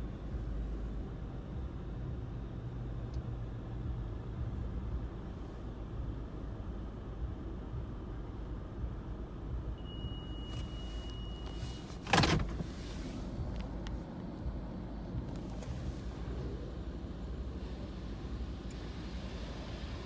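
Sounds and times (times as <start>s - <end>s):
low steady rumble: 0.0s - 20.0s
thin steady beep: 9.8s - 11.9s.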